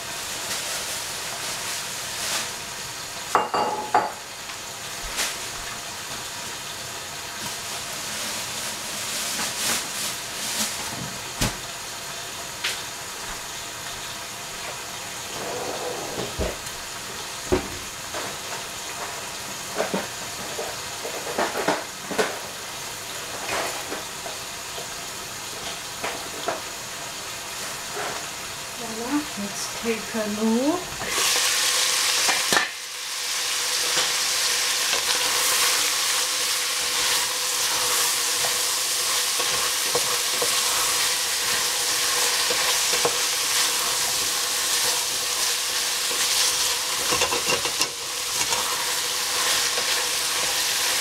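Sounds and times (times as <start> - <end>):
pot simmering hiss: 0.0 - 51.0
dishes and utensils clinking: 3.3 - 4.2, 47.0 - 48.6.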